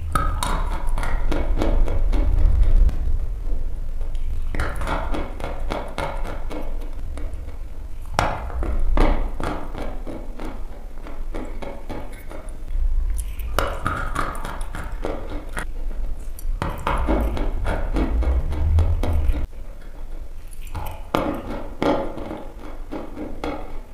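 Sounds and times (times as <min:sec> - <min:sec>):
steady low hum: 0:00.0 - 0:11.6, 0:12.2 - 0:19.7
chalk being chewed: 0:12.1 - 0:17.6, 0:20.4 - 0:21.2.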